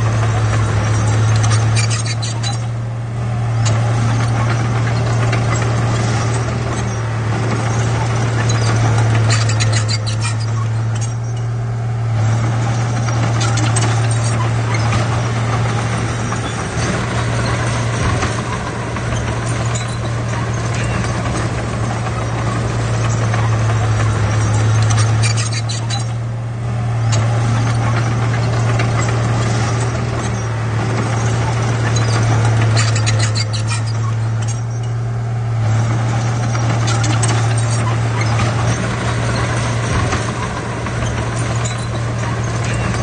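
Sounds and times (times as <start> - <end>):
bulldozer clattering: 0.0 - 43.0
bulldozer diesel engine droning: 0.0 - 43.0.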